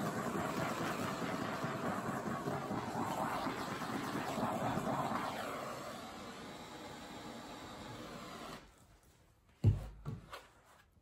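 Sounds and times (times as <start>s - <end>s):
electric blower running: 0.0s - 8.7s.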